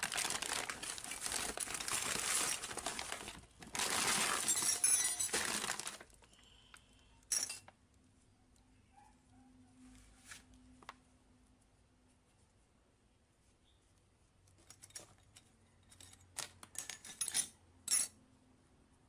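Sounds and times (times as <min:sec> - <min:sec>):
plastic bag rustling: 0:00.0 - 0:06.3
metal hardware clattering: 0:04.4 - 0:05.4, 0:07.3 - 0:07.7, 0:14.7 - 0:18.1.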